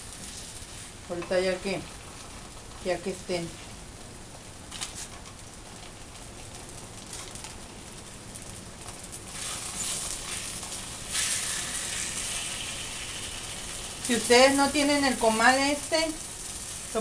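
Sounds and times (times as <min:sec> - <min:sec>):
tortillas sizzling in oil: 0:00.0 - 0:17.0.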